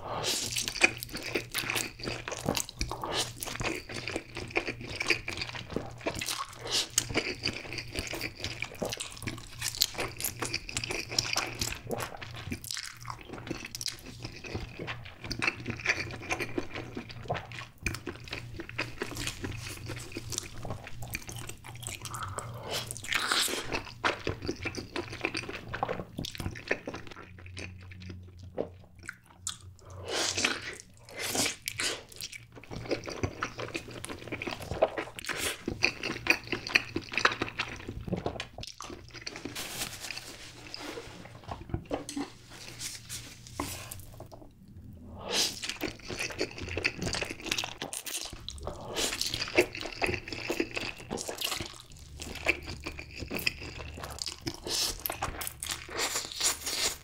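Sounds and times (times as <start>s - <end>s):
wet chewing and smacking: 0.4s - 39.6s, 45.5s - 57.0s
slurping noodles: 45.2s - 47.4s, 48.5s - 51.4s.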